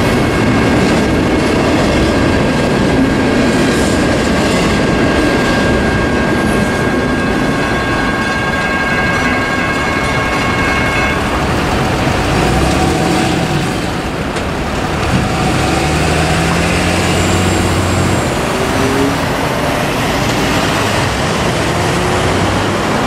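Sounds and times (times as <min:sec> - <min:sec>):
crossing electronic bell: 0:04.0 - 0:14.3
truck engine hum: 0:11.3 - 0:23.0
vehicles driving past: 0:11.7 - 0:23.0.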